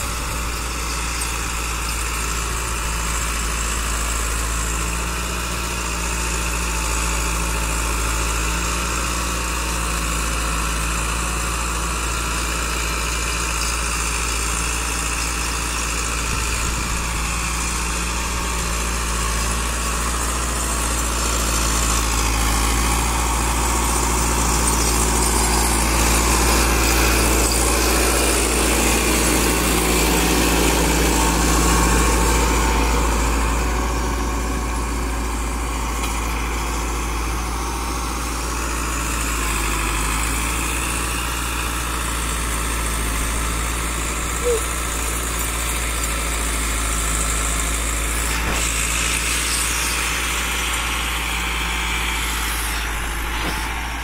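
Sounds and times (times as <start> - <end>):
tractor diesel engine under load: 0.0 - 54.0.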